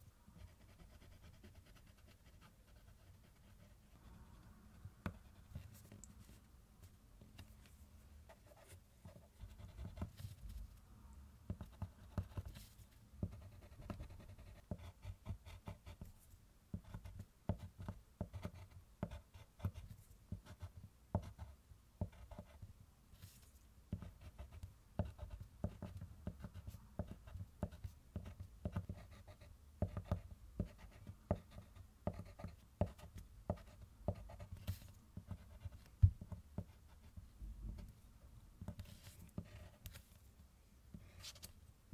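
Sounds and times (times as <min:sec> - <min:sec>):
colored pencil scratching on paper: 0:00.4 - 0:04.4, 0:08.3 - 0:10.4, 0:11.5 - 0:16.1, 0:23.2 - 0:37.2, 0:38.6 - 0:40.1
pencil tap: 0:29.8 - 0:36.7.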